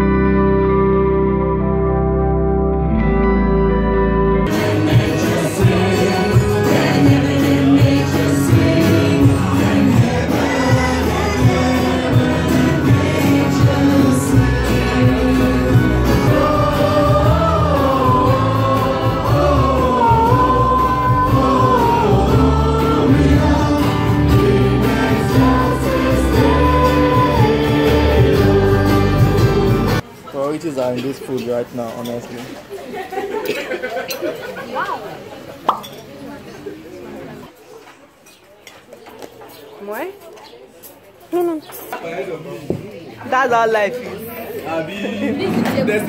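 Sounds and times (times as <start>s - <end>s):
steady bass accompaniment: 0.0s - 30.0s
congregation singing: 4.4s - 30.0s
worship band with drum beat: 4.5s - 30.0s.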